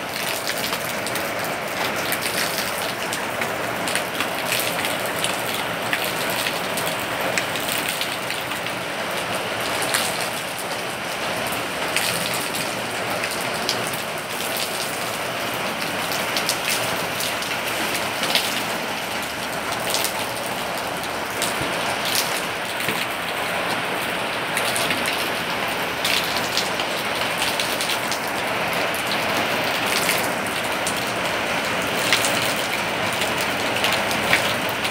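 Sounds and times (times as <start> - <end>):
steady rain hiss: 0.0 - 34.9.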